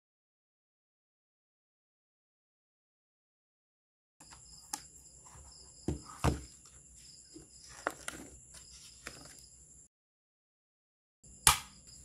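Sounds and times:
journal pages and cover handled: 4.3 - 9.5
low thump on wooden desk: 5.9 - 6.4.

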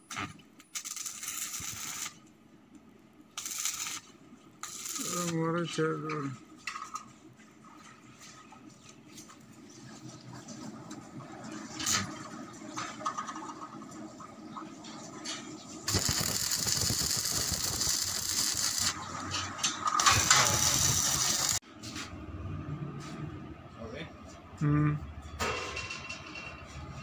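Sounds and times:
arc welding crackling sizzle: 0.0 - 2.3, 3.3 - 6.4, 15.8 - 21.6.

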